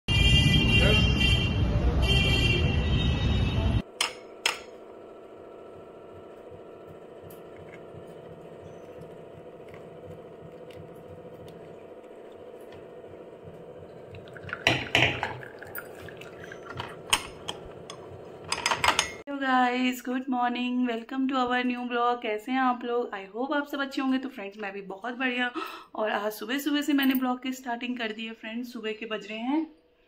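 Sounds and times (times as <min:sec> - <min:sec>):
steady hum: 0:03.8 - 0:19.2
tea pouring through strainer: 0:13.5 - 0:17.3.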